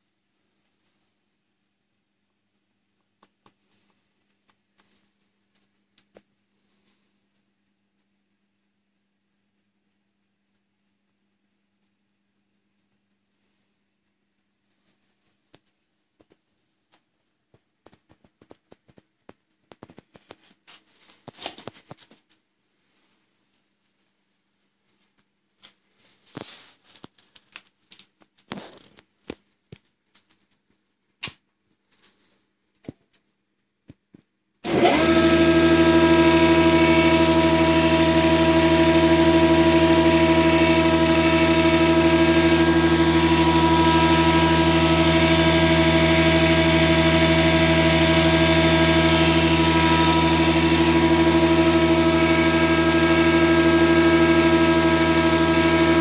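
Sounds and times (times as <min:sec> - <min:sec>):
small clicks and taps: 0:03.0 - 0:22.5, 0:25.0 - 0:34.8
electric gear motor whining: 0:34.6 - 0:56.0.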